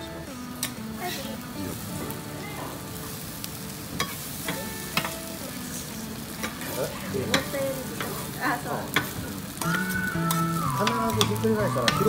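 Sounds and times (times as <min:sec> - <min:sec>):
food sizzling on a griddle: 0:00.0 - 0:12.0.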